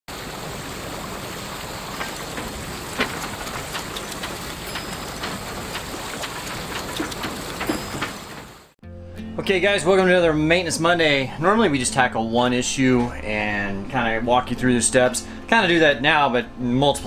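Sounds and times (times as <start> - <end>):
water rushing along hull: 0.1 - 8.8.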